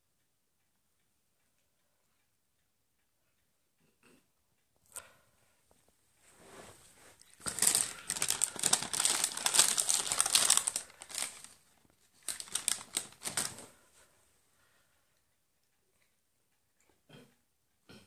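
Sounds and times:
paper bag rustling: 0:07.4 - 0:11.6, 0:12.2 - 0:13.8.

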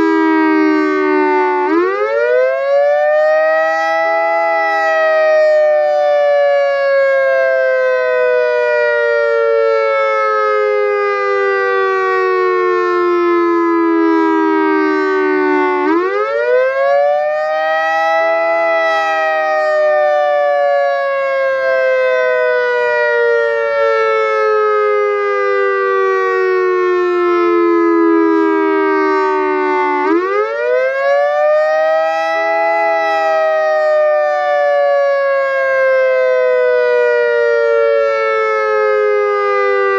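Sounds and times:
warning siren tone: 0:00.0 - 0:39.9.

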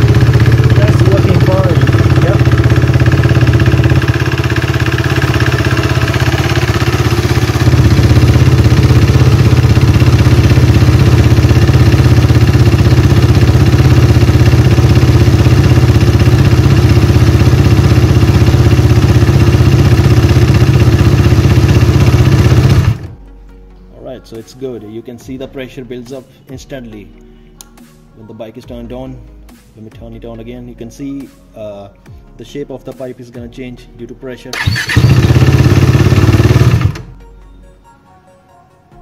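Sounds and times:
motorcycle engine running: 0:00.0 - 0:23.3, 0:34.6 - 0:37.2.

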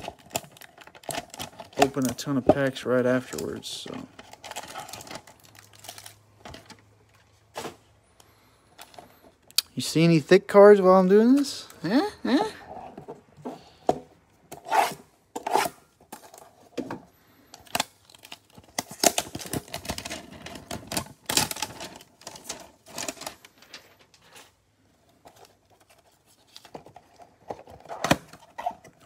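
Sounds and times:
plastic packs crinkling: 0:00.0 - 0:07.6, 0:17.3 - 0:29.0.

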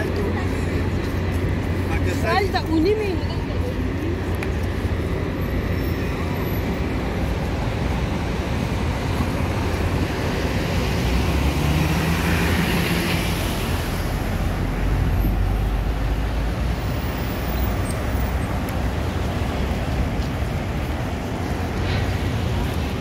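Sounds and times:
vehicles driving past: 0:00.0 - 0:23.0.

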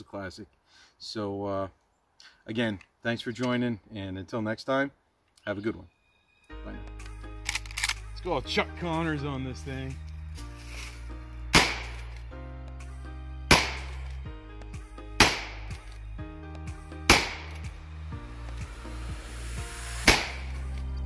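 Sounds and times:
rifle action clicks: 0:07.4 - 0:08.0
rifle shots: 0:11.5 - 0:12.0, 0:13.5 - 0:14.0, 0:15.2 - 0:15.8, 0:17.1 - 0:17.6, 0:20.0 - 0:20.6.

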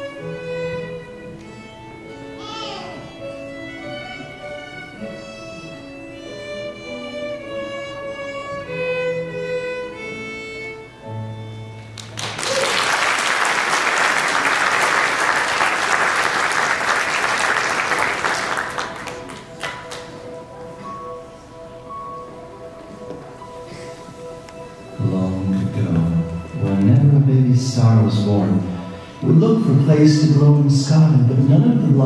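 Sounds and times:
violin playing slow melody: 0:00.0 - 0:12.2, 0:20.3 - 0:32.0
audience applause: 0:12.0 - 0:20.2.

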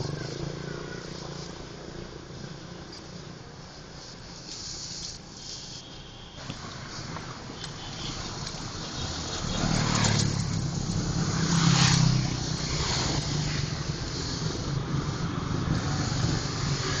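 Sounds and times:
traffic hum: 0:00.0 - 0:17.0
vehicle engine passing close: 0:08.1 - 0:17.0.

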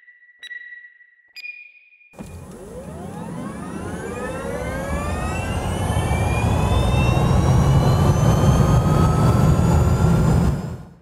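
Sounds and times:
low rumble: 0:02.2 - 0:11.0
rising engine-like whine: 0:02.2 - 0:11.0.

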